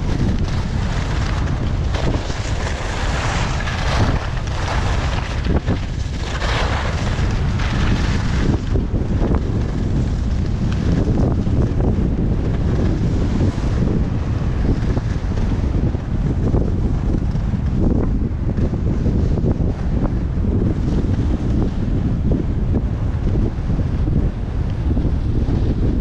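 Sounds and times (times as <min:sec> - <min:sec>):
wind rushing over microphone: 0:00.0 - 0:26.0
skis hissing on packed snow: 0:02.0 - 0:05.6, 0:06.2 - 0:08.6.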